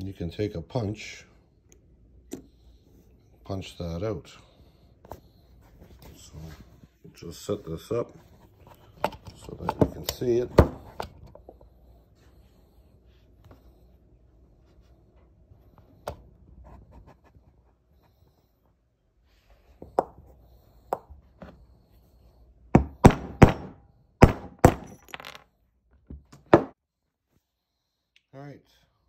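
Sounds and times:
hammer striking a punch: 22.8 - 25.0.

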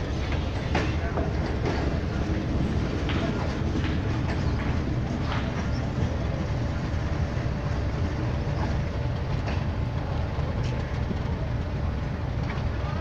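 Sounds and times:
train wheels rumbling on rails: 0.0 - 13.0
faint rail clicks: 8.4 - 13.0.

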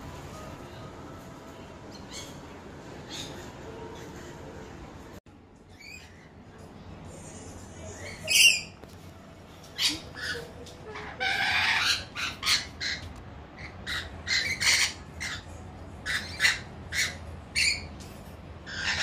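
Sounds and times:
lorikeets screeching: 5.7 - 6.3, 9.7 - 18.0, 18.6 - 19.0.

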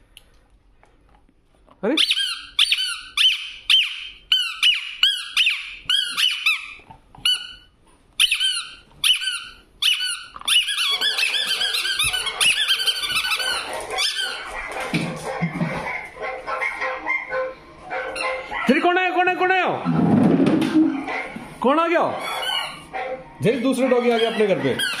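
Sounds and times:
rubber squeaky toy squeaks: 1.9 - 14.4, 22.2 - 22.9, 24.0 - 25.0.

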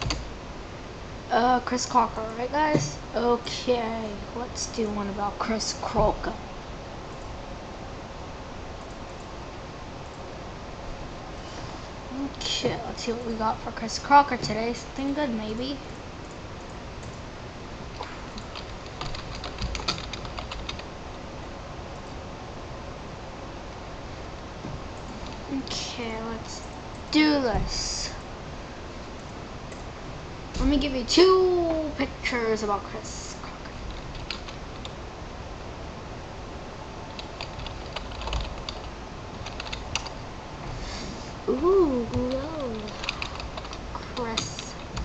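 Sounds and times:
faint steady hiss: 0.0 - 45.0
low room hum: 0.0 - 45.0
keyboard typing: 18.0 - 20.9, 33.9 - 35.0, 37.1 - 40.2, 42.1 - 45.0.

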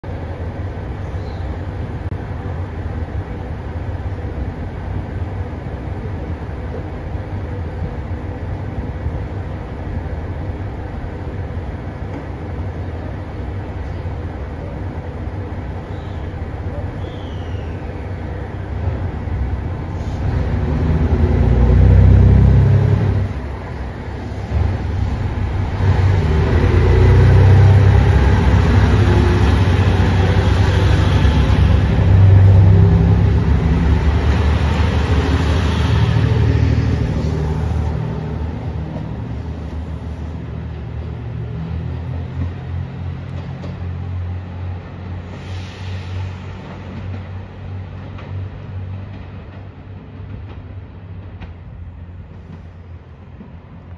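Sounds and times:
diesel train engines accelerating: 0.0 - 53.9.

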